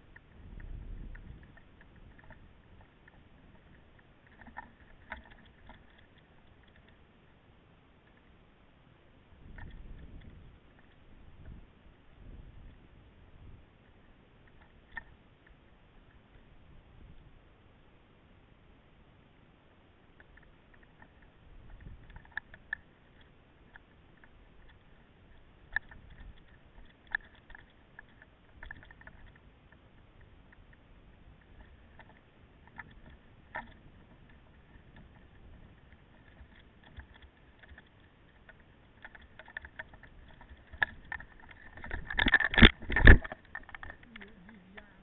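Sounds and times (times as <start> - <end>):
mountain bike rattling: 30.4 - 45.0.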